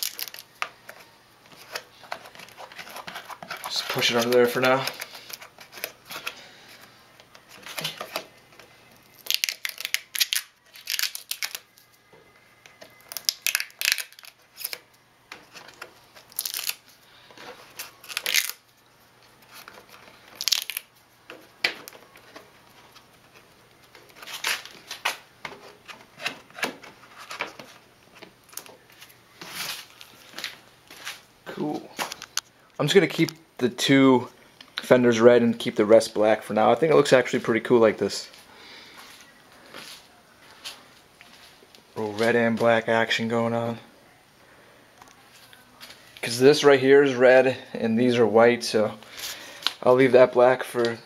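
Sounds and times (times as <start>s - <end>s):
rubber coating tearing and crinkling: 0.0s - 0.6s, 1.5s - 6.4s, 7.4s - 11.9s, 12.8s - 18.7s, 19.4s - 31.2s.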